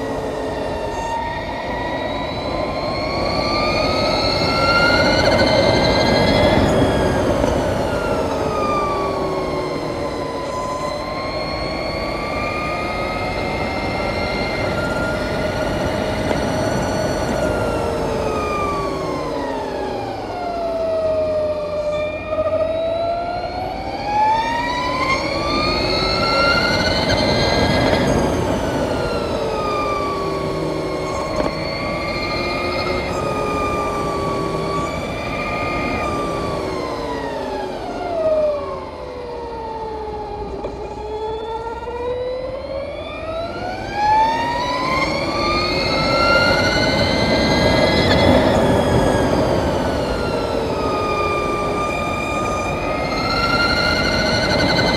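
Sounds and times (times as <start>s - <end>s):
electric motorcycle drive whine: 0.0s - 54.9s
wind and tyre noise: 0.0s - 54.9s.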